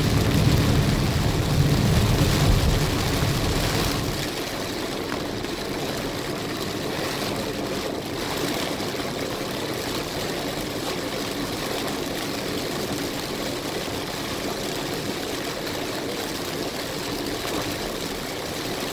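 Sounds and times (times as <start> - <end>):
tyre noise on wet road: 0.0 - 9.3
heavy rain on car windshield: 0.0 - 18.9.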